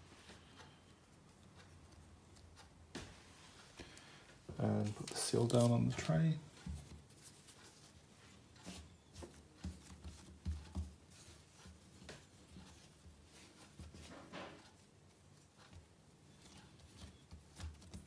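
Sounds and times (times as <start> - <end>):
hands brushing dough: 4.7 - 18.0
soft dough thumps: 6.5 - 14.9, 15.5 - 18.0.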